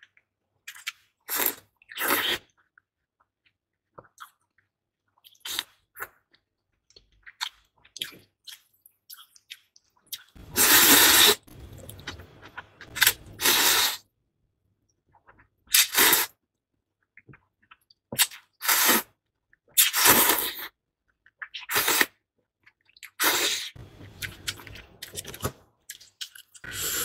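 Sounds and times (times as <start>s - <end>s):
mouth clicks and chewing: 0.0s - 10.4s
wet slurp of noodles: 1.3s - 2.5s, 10.4s - 12.2s, 12.8s - 14.0s, 15.7s - 16.3s, 18.6s - 19.1s, 19.8s - 20.8s, 21.6s - 22.2s, 26.6s - 27.0s.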